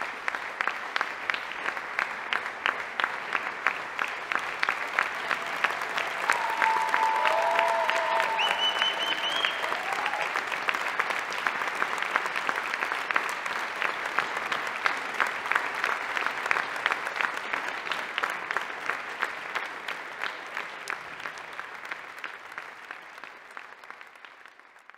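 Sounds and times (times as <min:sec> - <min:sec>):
audience applauding: 0:00.0 - 0:24.9
brief high whistle: 0:08.4 - 0:09.6.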